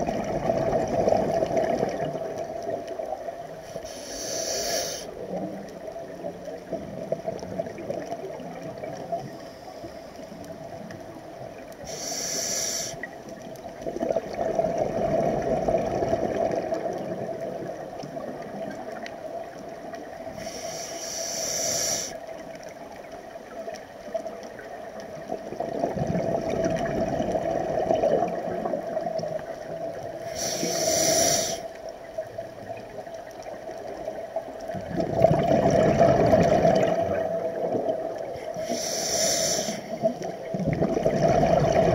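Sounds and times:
regulator hissing inhale: 0:03.6 - 0:05.2, 0:09.3 - 0:10.5, 0:11.8 - 0:13.1, 0:20.3 - 0:22.3, 0:30.2 - 0:31.8, 0:38.4 - 0:40.2
bubbling exhale: 0:30.2 - 0:31.7, 0:34.8 - 0:41.9.

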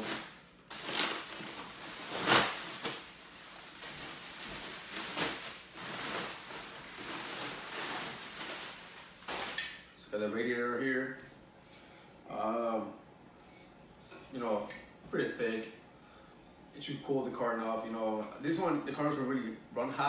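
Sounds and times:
plastic wrapping crinkling: 0:00.0 - 0:09.9.

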